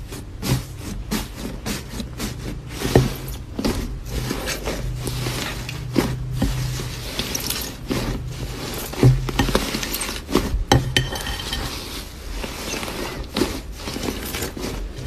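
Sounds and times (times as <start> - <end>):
slime crackling and squelching: 0.0 - 11.0.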